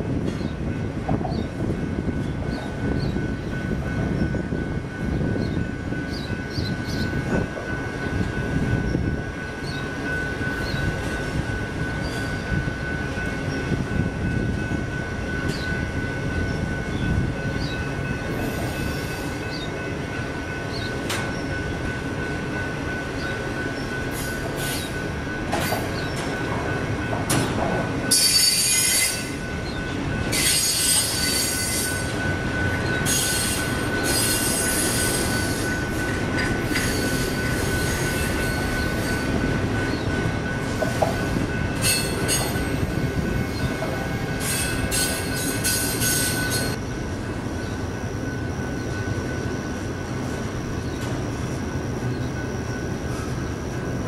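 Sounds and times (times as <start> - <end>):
freight train rumbling past: 0.0 - 54.0
high wheel squeal: 28.1 - 29.4, 30.3 - 32.1, 32.8 - 39.3, 44.4 - 46.8.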